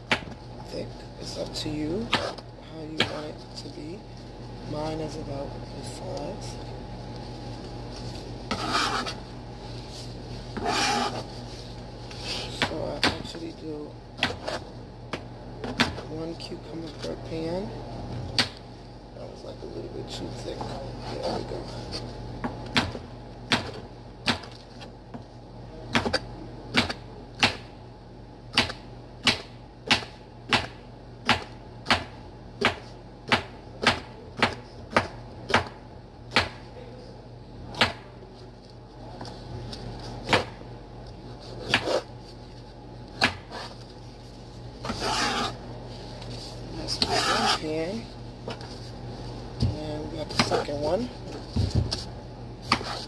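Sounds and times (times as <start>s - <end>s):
rustling and scraping: 6.6s - 12.6s, 43.5s - 47.7s, 48.4s - 53.0s.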